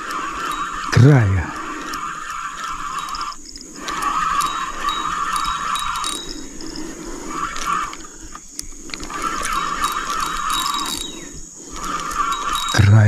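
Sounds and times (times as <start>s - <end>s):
fishing reel whirring: 0.0s - 13.0s.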